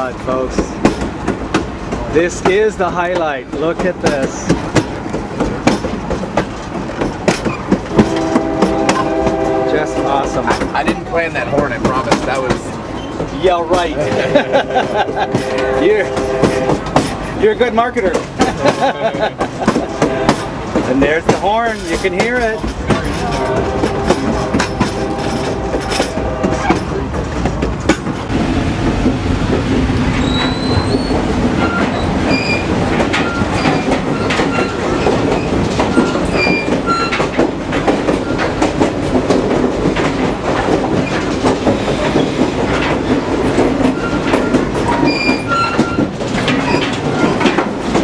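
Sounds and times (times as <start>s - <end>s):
train cars running: 0.0s - 48.0s
wheels clacking over rail joints: 0.0s - 48.0s
locomotive horn: 7.9s - 10.6s, 14.0s - 17.0s, 19.7s - 20.6s, 23.2s - 27.0s
high-pitched wheel squeals: 30.1s - 37.3s, 43.8s - 47.4s.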